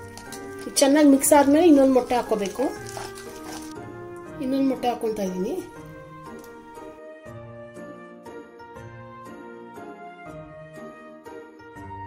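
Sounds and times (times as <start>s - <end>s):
light music with bell-like notes: 3.7s - 12.0s.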